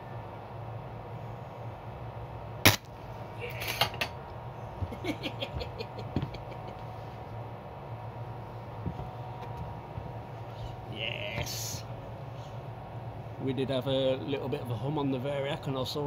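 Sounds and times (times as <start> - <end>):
low steady hum: 0.0 - 16.0
lamp shorting with loud pop: 2.6 - 2.9.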